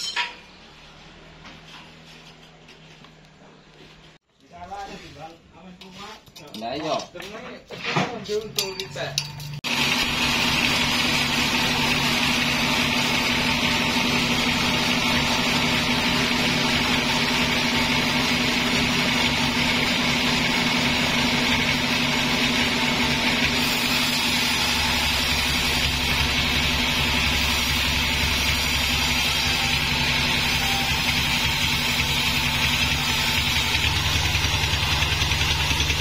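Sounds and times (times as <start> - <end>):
band saw cutting log: 9.7 - 36.0.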